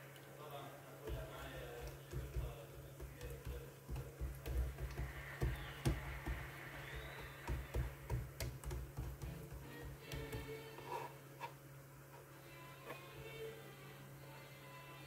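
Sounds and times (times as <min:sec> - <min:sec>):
hands patting dough on wood: 0:01.1 - 0:10.6.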